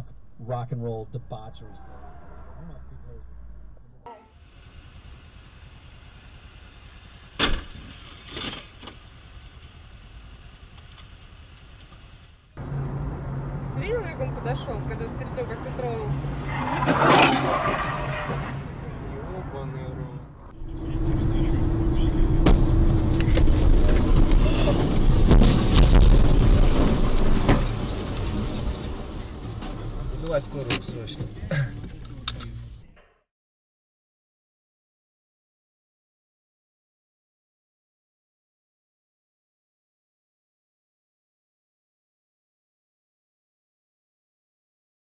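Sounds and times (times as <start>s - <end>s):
motorcycle engine rumbling: 0.0s - 32.9s
sharp bang: 20.6s - 27.8s.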